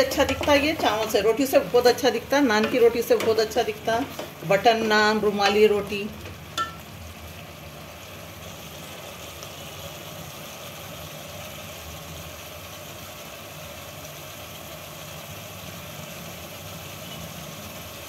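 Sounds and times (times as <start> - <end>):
gravy simmering in a pot: 6.2 - 18.0.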